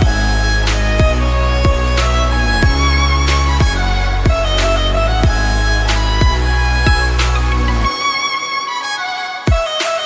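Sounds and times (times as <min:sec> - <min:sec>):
deep kick drums: 0:00.0 - 0:07.2
electronic music with steady beat: 0:00.0 - 0:10.0.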